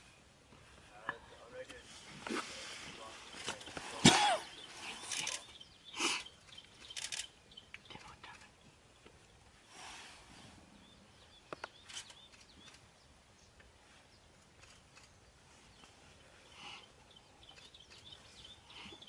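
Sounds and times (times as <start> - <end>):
sharp clicks: 6.4 - 8.5.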